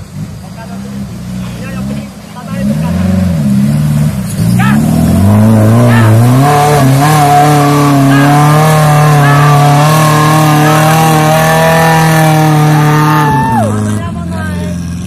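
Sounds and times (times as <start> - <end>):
engine revving hard: 0.6 - 15.0.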